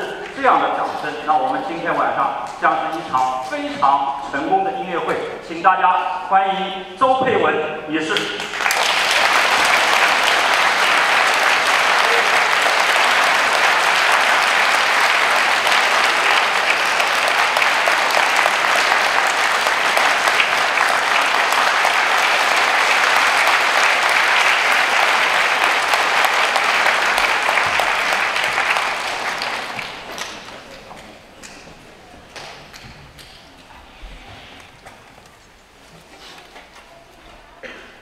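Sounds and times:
audience applauding: 8.2s - 31.6s.

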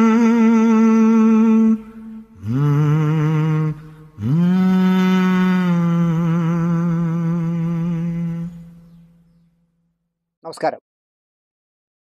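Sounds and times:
man humming: 0.0s - 8.9s.

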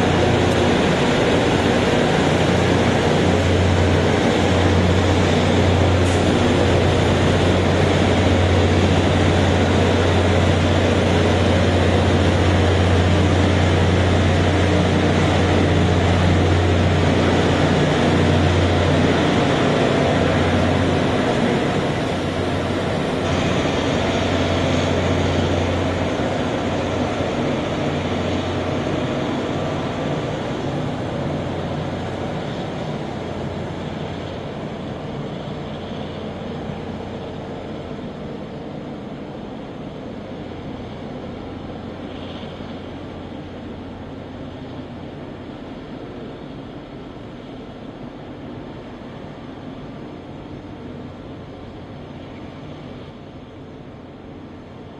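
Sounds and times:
diesel engines droning: 0.0s - 54.9s.

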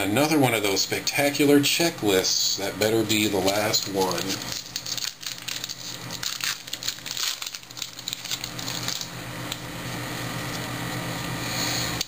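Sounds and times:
foil wrapper crinkling: 3.4s - 9.6s.

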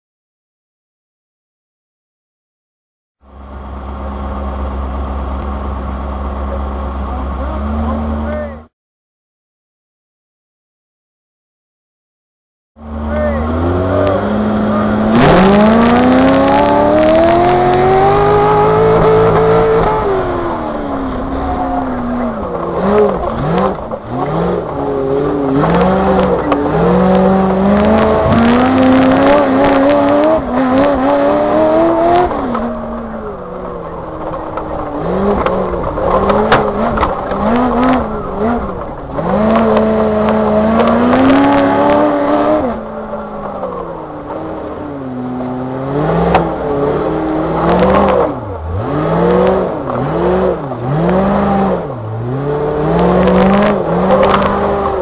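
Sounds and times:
buggy engine revving: 3.3s - 8.7s, 12.8s - 55.0s
chassis knocks and rattles: 33.7s - 42.0s.

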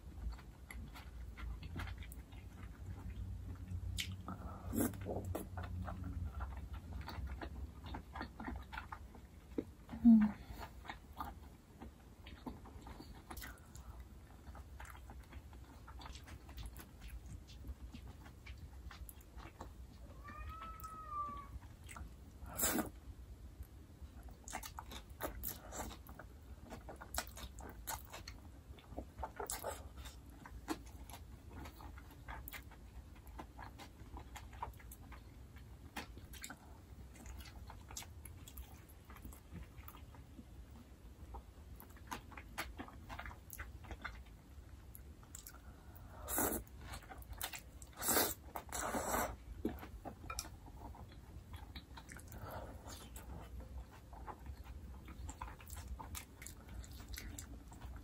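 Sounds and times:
soft chewing of noodles: 0.0s - 58.0s
pet crying: 20.1s - 21.6s.

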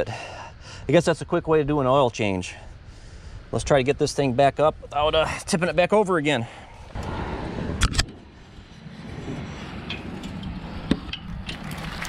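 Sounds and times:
low rumbling noise: 6.5s - 12.0s.

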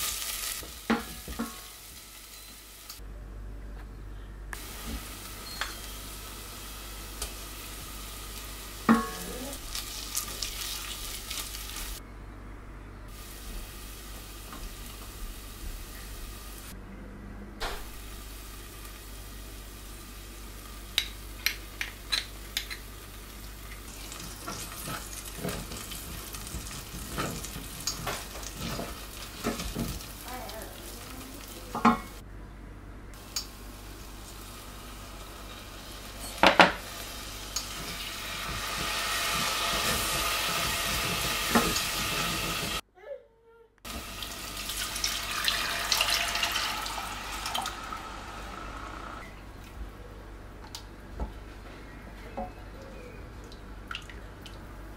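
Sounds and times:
liquid sizzling in hot pot: 0.0s - 3.0s, 4.6s - 12.0s, 17.9s - 32.2s, 33.2s - 42.8s, 43.9s - 49.2s
paste frying in oil: 4.6s - 12.0s, 22.0s - 32.2s, 43.9s - 49.2s.

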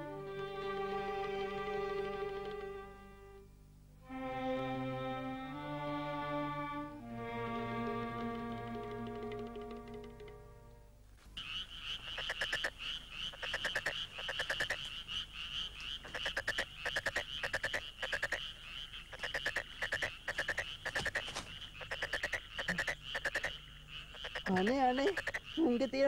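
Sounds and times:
background music: 0.0s - 11.0s
frogs calling: 11.4s - 26.0s.

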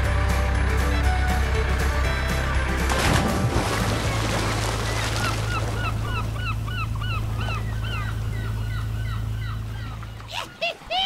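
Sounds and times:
steady low hum: 2.9s - 10.7s
gull yelping calls: 5.1s - 11.0s.

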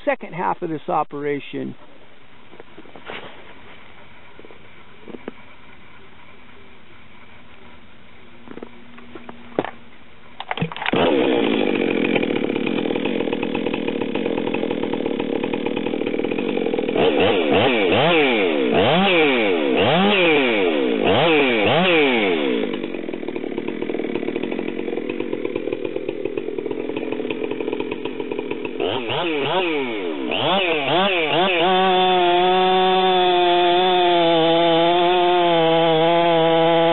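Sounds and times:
chainsaw engine revving and idling: 10.4s - 36.9s.

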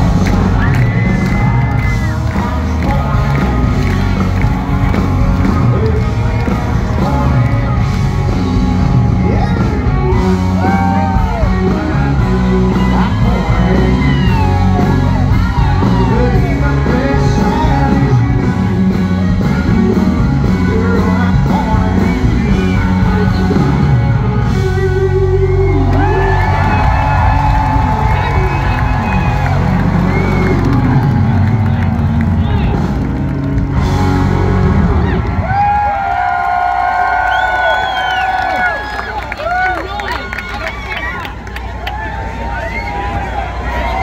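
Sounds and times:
live country band with electric guitars: 0.0s - 44.0s
man singing: 0.3s - 4.7s, 5.3s - 29.4s.

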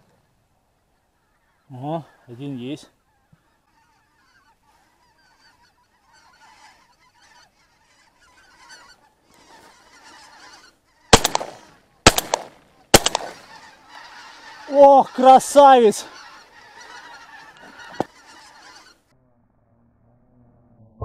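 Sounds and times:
geese honking: 0.8s - 19.1s
shotgun shots: 11.1s - 13.5s.

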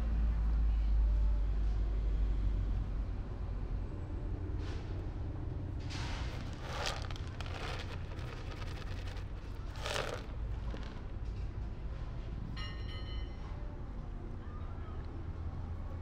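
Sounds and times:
dry cat food rustling: 6.0s - 11.1s.

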